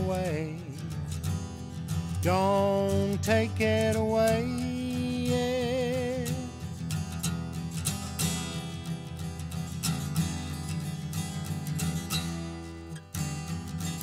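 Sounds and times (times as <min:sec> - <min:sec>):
person singing: 0:00.0 - 0:01.2, 0:02.1 - 0:06.7
acoustic guitar strumming: 0:00.0 - 0:14.0.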